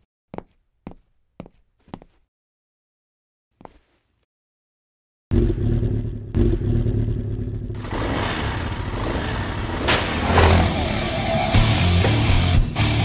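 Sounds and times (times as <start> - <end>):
motorcycle engine rumbling and revving: 5.3 - 13.0.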